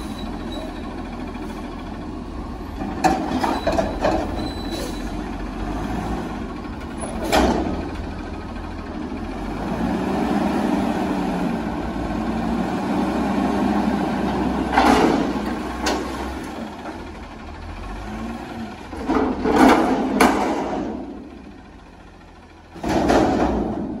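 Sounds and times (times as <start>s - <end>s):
dumpster metal clanks: 2.8s - 5.2s, 6.9s - 8.0s, 14.6s - 17.1s, 18.8s - 21.2s, 22.7s - 24.0s
garbage truck engine revving: 4.3s - 21.8s.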